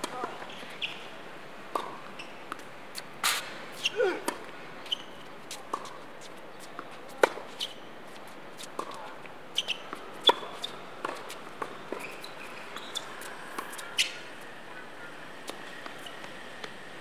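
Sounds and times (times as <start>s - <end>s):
racket striking tennis ball: 8.8s - 9.0s.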